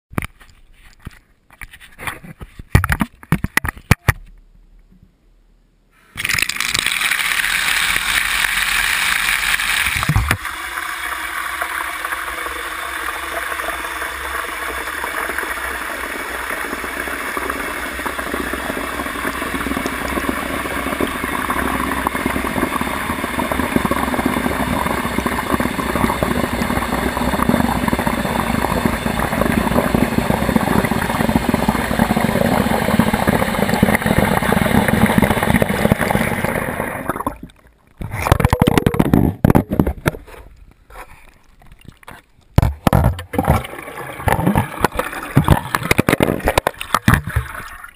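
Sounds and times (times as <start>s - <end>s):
tap water pouring into tub: 6.2s - 37.6s, 42.9s - 47.9s.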